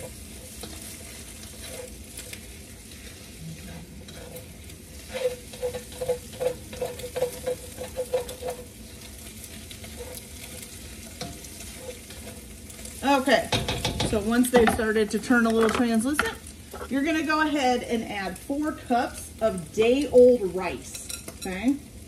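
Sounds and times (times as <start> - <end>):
spatula scraping pan: 0.0 - 17.4
food sizzling in oil: 0.0 - 22.0.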